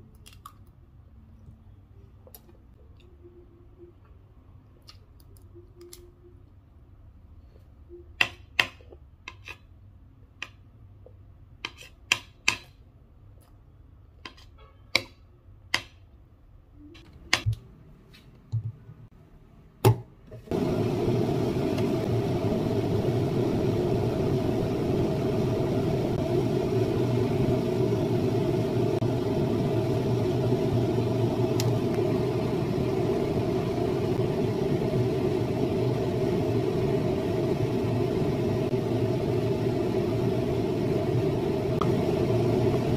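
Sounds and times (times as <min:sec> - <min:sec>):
mechanical whirring hum: 0:16.4 - 0:42.9.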